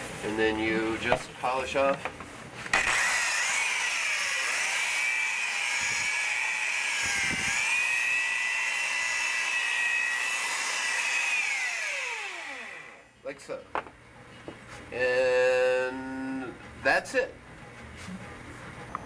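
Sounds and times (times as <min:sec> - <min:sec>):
electric polisher motor whine: 0:02.7 - 0:13.1.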